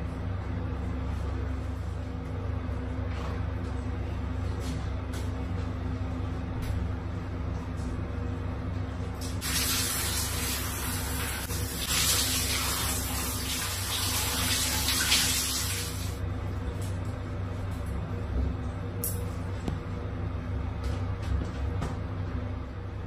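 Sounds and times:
steady low hum: 0.0s - 23.0s
shower water spraying: 9.3s - 16.2s.

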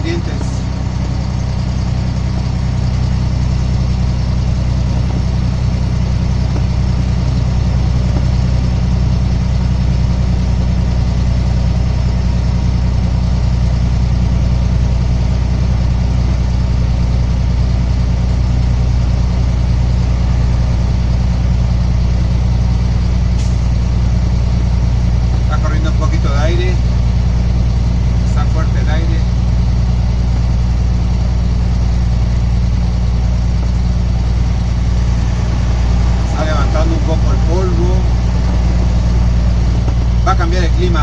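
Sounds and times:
tyre and road noise: 0.0s - 13.6s, 29.1s - 41.0s
truck engine drone: 0.0s - 41.0s.

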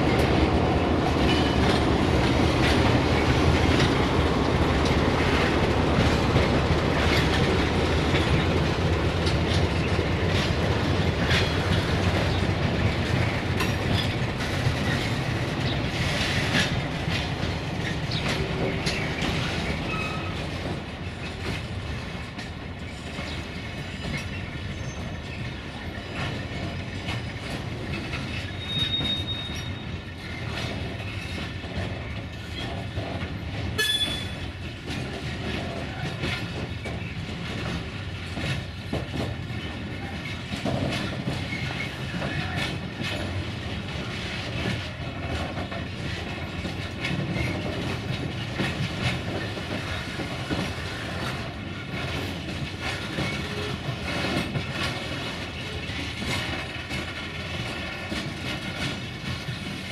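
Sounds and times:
train wheels rumbling over rails: 0.0s - 59.9s
high wheel squeal: 19.9s - 20.4s, 28.4s - 30.4s.

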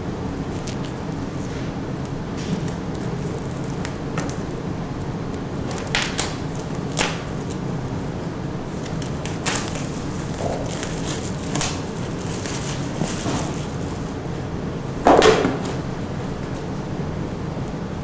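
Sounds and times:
steady low hum: 0.0s - 18.0s
paper rustling: 8.7s - 14.1s.

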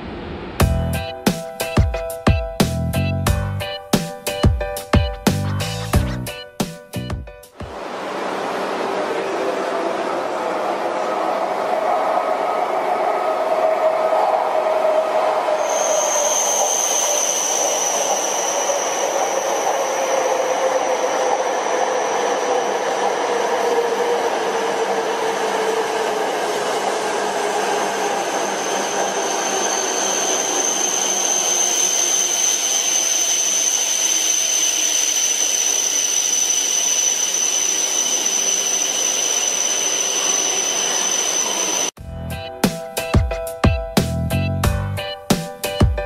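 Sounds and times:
train wheel and air rush: 7.5s - 42.0s
thin high whistle: 15.0s - 23.0s, 27.8s - 41.9s.

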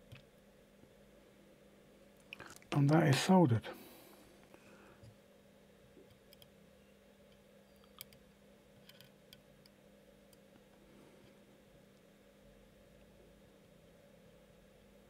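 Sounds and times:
faint hum: 0.0s - 15.0s
tweezers clicking on circuit board: 7.3s - 8.2s.

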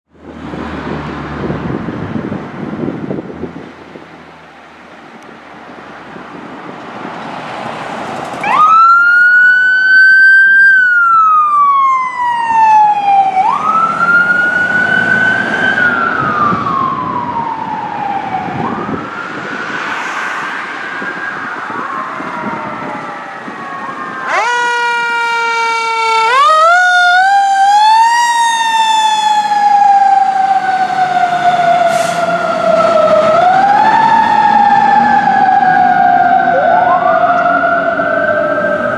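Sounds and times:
fire engine noise: 0.1s - 38.9s
electronic wail siren: 8.4s - 38.9s
loud wailing siren: 8.4s - 38.9s.

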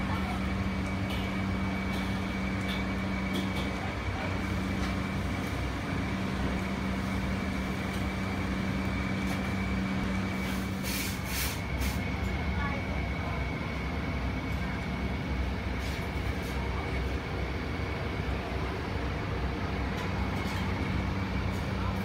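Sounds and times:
exhaust fans humming: 0.0s - 22.0s.

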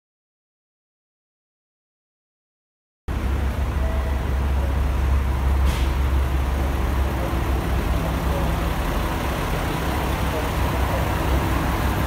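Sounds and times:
diesel railcar engine idling: 3.1s - 12.0s
short hiss: 5.6s - 6.0s.

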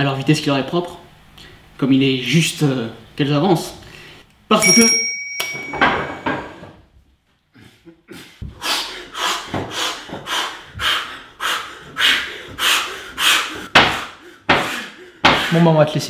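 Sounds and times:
person breathing hard: 7.5s - 15.7s.

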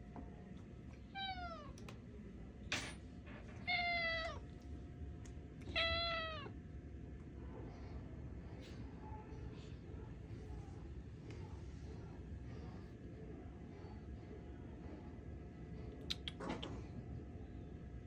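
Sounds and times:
cat meowing: 1.1s - 1.8s, 3.6s - 4.5s, 5.6s - 6.5s.

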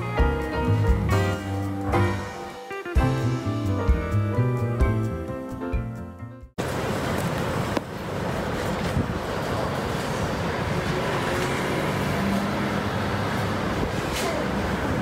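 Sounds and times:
road traffic noise: 6.6s - 15.0s.

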